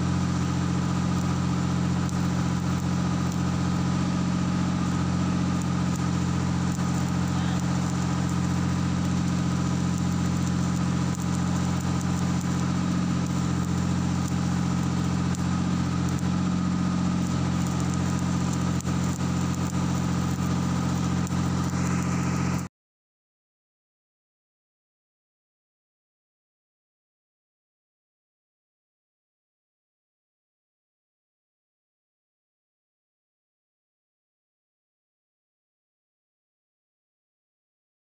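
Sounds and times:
engine droning steadily: 0:00.0 - 0:22.7.

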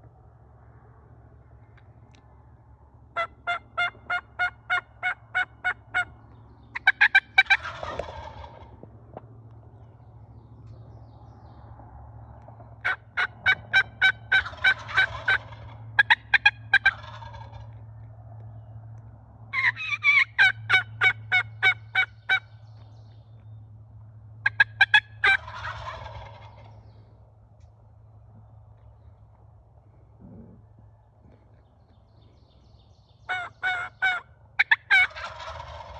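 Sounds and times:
wild turkeys calling: 0:03.1 - 0:10.0, 0:12.6 - 0:17.8, 0:19.5 - 0:23.5, 0:24.4 - 0:27.8, 0:28.4 - 0:35.9.

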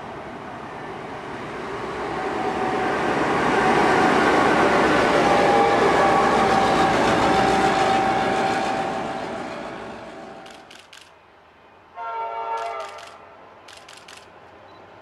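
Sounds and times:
diesel locomotives passing: 0:00.0 - 0:15.0
faint clicks: 0:10.4 - 0:11.2, 0:12.6 - 0:14.3
locomotive horn chord: 0:12.0 - 0:12.8.

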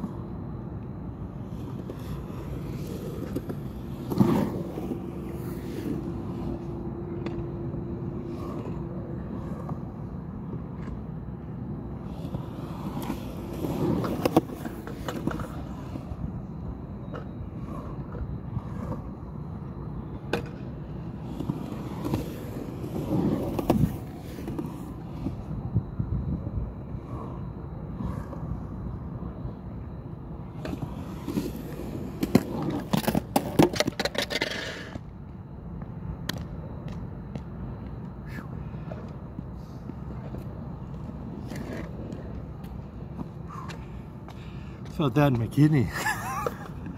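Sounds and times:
skateboard wheels rumbling on concrete: 0:00.0 - 0:46.9
skateboard clacks: 0:20.2 - 0:25.4, 0:30.5 - 0:39.2.

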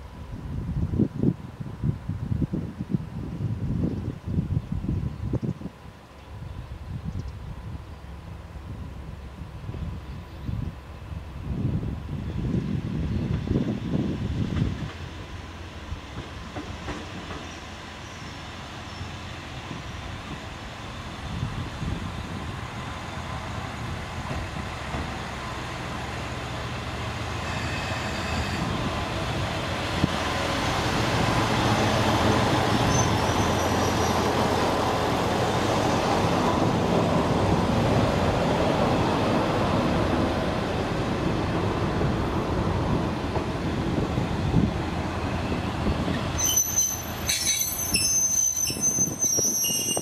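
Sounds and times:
diesel railcar engine and wheels rumbling: 0:00.0 - 0:50.0
high-pitched metallic squeals: 0:27.4 - 0:28.7, 0:46.4 - 0:50.0.

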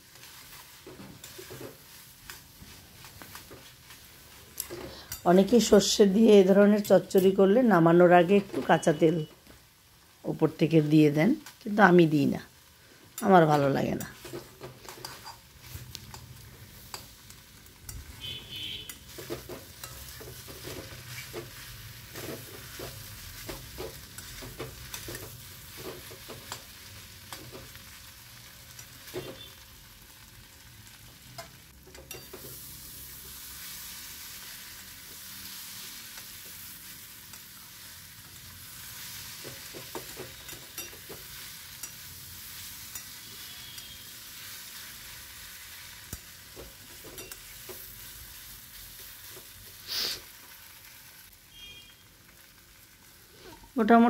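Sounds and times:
vegetables sizzling in oil: 0:00.0 - 0:54.0
metal spatula scraping pan: 0:13.5 - 0:16.2.

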